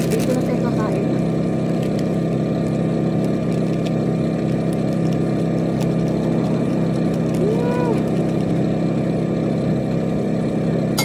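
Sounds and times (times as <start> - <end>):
engine idling drone: 0.0 - 11.0.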